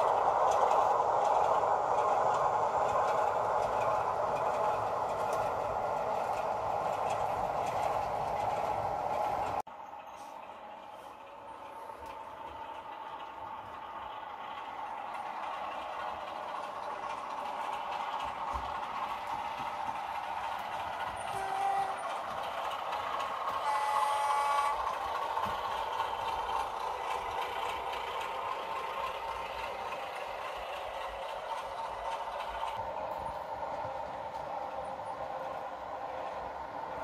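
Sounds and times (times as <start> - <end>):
locomotive horn tone: 21.2 - 22.2, 23.6 - 25.0.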